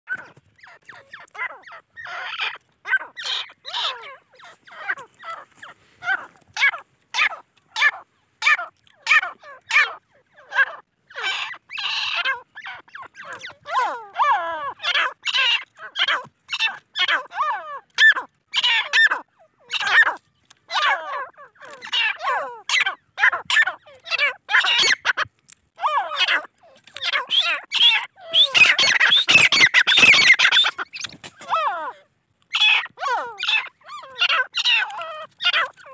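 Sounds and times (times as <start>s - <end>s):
chicks chirping: 10.4s - 17.2s, 26.0s - 31.9s.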